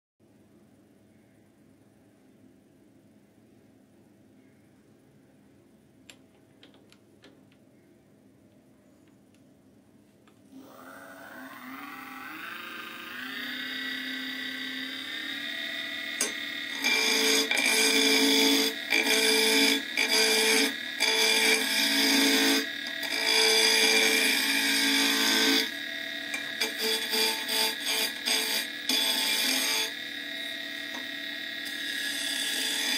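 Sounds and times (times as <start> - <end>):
lathe motor whine: 10.5 - 32.9
chisel cutting spinning wood: 10.6 - 32.9.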